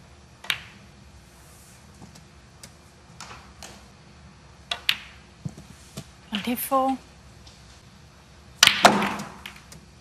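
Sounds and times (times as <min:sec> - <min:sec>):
snooker balls clicking: 0:00.4 - 0:00.9, 0:04.7 - 0:05.7, 0:08.6 - 0:09.9.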